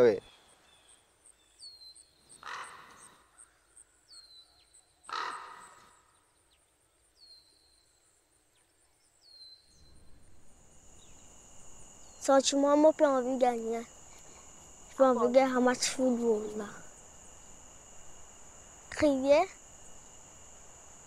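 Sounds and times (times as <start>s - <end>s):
birds calling: 0.0s - 8.0s.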